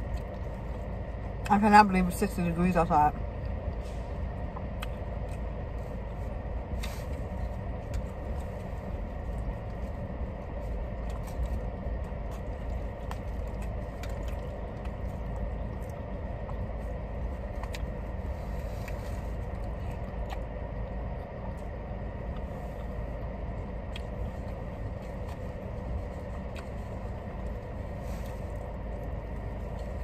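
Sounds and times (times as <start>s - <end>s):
faint steady whine: 0.0s - 30.0s
chewing: 3.4s - 30.0s.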